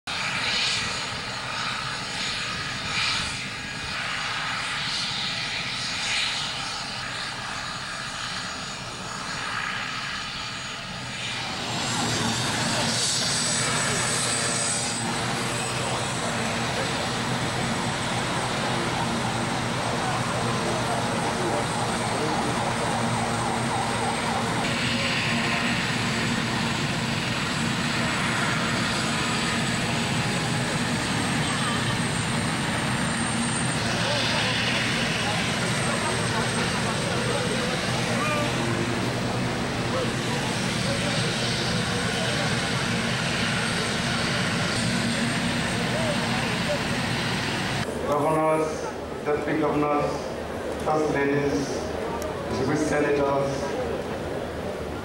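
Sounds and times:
helicopter turbine roar and whine: 0.1s - 55.0s
murmur of voices: 10.7s - 55.0s.

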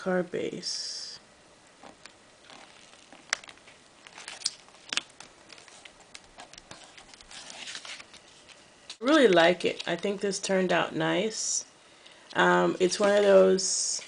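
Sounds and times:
soft paper rustling: 1.8s - 10.0s.

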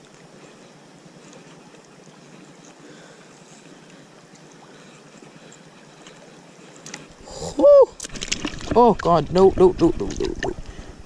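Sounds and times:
faint small ticks: 0.0s - 7.2s
river water over stones: 0.0s - 11.0s.

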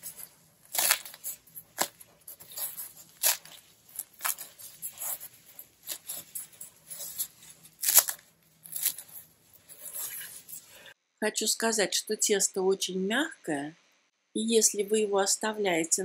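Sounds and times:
flatbread crust crunching: 0.0s - 10.9s.

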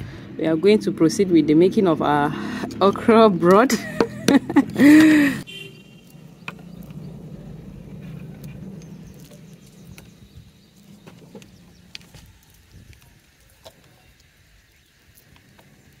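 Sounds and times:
dried fish crackling when broken: 6.0s - 16.0s.

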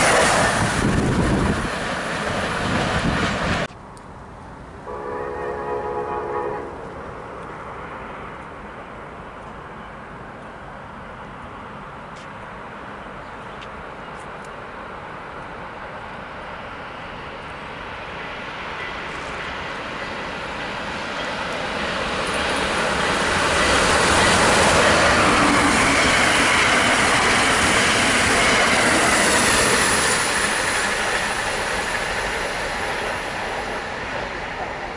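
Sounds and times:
train passing at speed: 0.0s - 34.9s.

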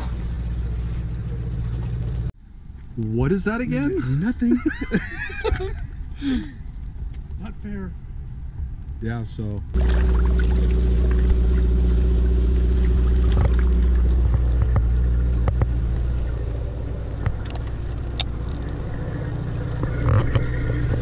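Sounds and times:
boat engine droning: 0.0s - 6.9s, 7.9s - 21.0s.

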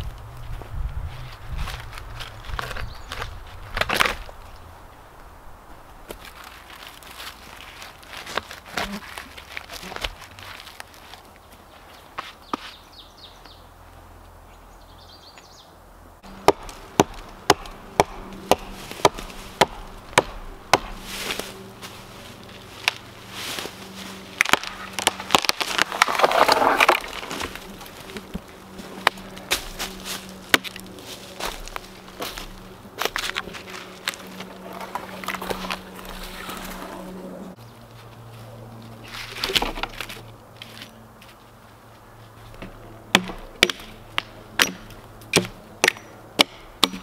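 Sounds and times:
rustling: 0.0s - 12.8s, 16.2s - 42.8s
axe chopping wood: 16.3s - 21.5s, 24.4s - 30.8s, 42.6s - 47.0s.

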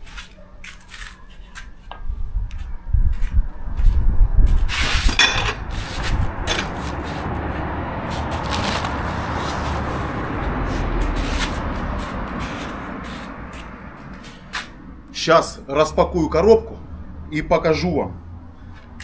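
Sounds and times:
low rumble: 2.1s - 15.2s
metal parts scraping: 4.8s - 5.6s.

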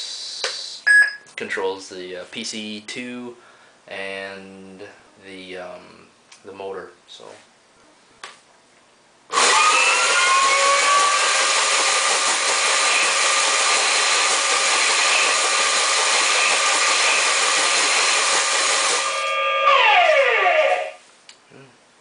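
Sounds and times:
electric motor whirring: 9.3s - 20.8s.

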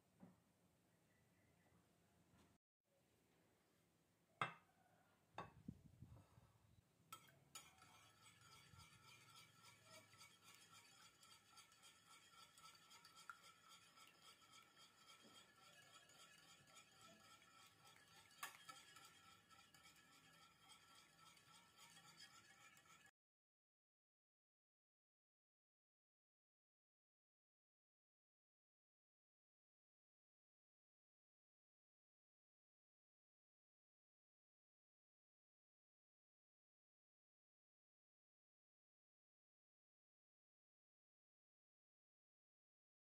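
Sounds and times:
whisk clinking against glass: 7.2s - 23.1s.

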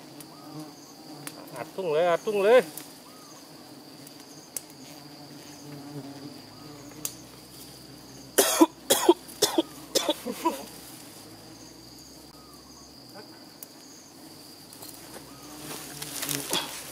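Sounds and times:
insects buzzing: 0.0s - 16.9s
person coughing: 8.4s - 10.7s.

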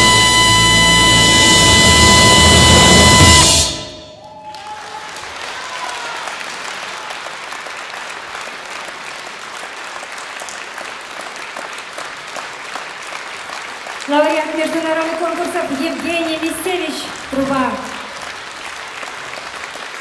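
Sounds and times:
orchestra final chord: 0.0s - 4.3s
audience applauding: 4.0s - 20.0s.

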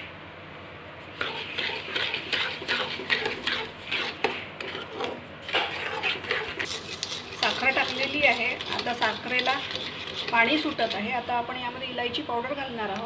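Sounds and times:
metal spatula scraping pan: 1.2s - 11.1s.

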